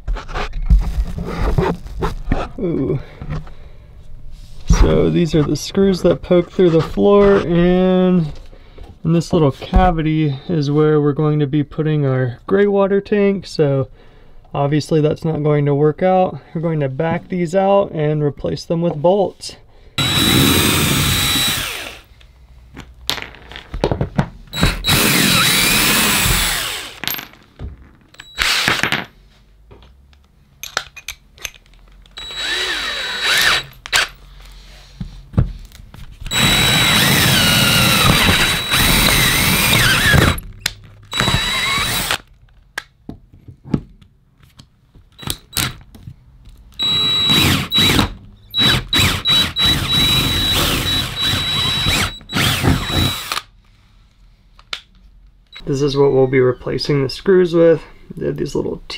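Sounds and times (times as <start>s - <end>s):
cordless drill running: 20.0s - 22.1s, 24.6s - 27.0s, 28.4s - 28.7s, 32.2s - 34.0s, 36.3s - 40.4s, 41.1s - 42.2s, 46.8s - 53.5s.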